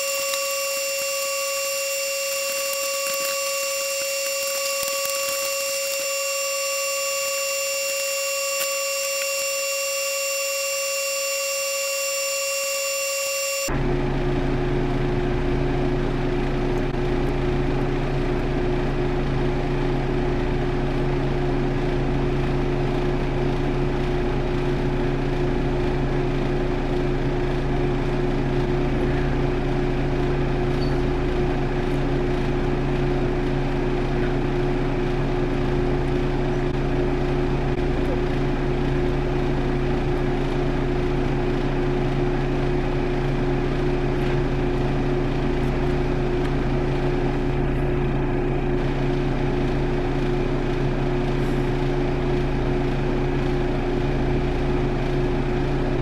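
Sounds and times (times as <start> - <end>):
machine drone: 0.0 - 14.5.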